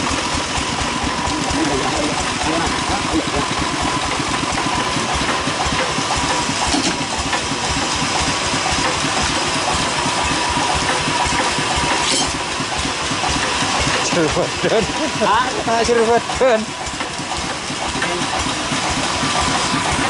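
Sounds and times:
saw mill engine: 0.0 - 20.0
saw blade whine: 9.4 - 12.6.

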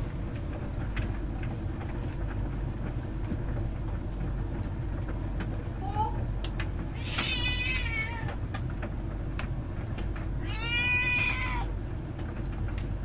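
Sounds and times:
clothes dryer humming: 0.0 - 13.0
cat meowing: 6.9 - 8.4, 10.4 - 11.7.

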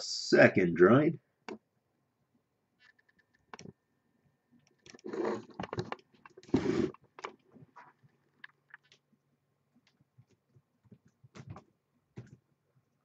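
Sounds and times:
mouse and keyboard clicks: 2.8 - 3.8.

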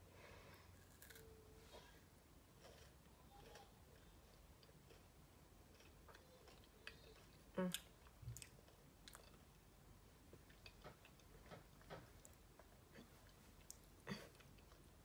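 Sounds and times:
chewing snack bar: 2.6 - 9.6.

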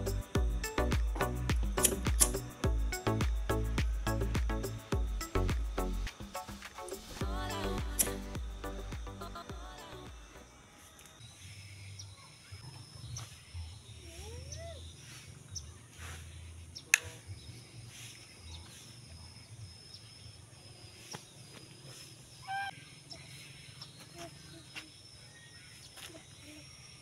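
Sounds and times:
high-pitched tone: 0.0 - 11.0
sharp click: 1.5 - 2.4, 8.0 - 8.2
birds calling: 10.9 - 27.0.

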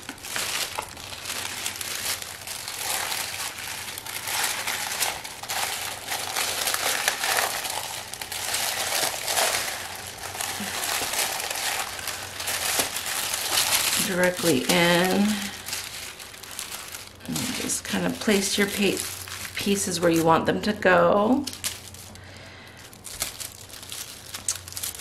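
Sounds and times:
plastic bag crinkling: 0.0 - 25.0.

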